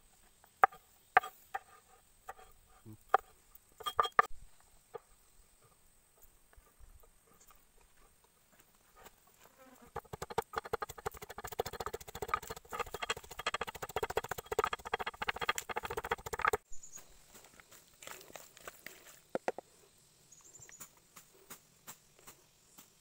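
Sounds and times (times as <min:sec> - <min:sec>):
wooden pestle pounding in mortar: 0:09.9 - 0:16.6.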